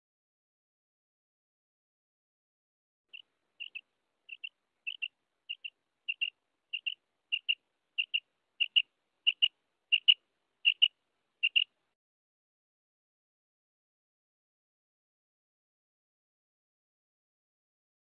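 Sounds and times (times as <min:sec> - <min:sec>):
quail calling: 0:03.1 - 0:11.8.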